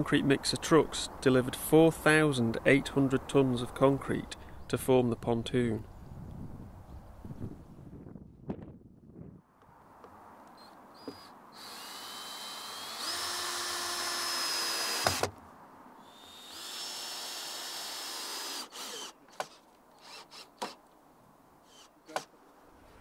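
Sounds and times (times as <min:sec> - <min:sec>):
cordless drill driving screws: 0:11.0 - 0:15.3, 0:16.0 - 0:20.8.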